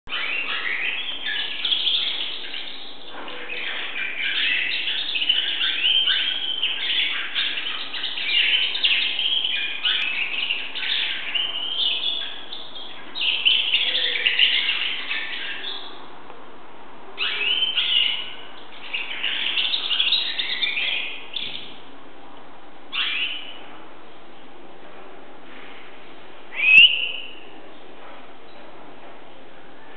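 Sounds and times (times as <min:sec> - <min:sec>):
canary singing: 0:00.1 - 0:16.0, 0:17.2 - 0:21.8, 0:22.9 - 0:23.6, 0:26.5 - 0:27.5.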